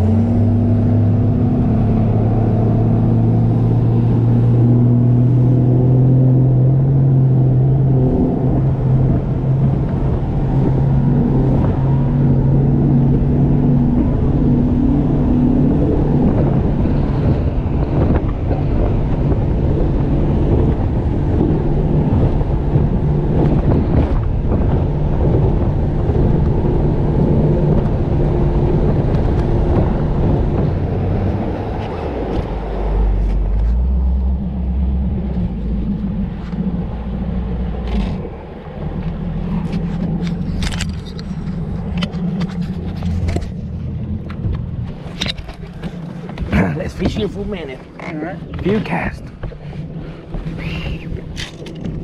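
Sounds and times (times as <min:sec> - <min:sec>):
outboard motor running: 0:00.0 - 0:52.0
wind and water rushing: 0:00.0 - 0:52.0
sharp clicks and knocks: 0:39.0 - 0:47.4.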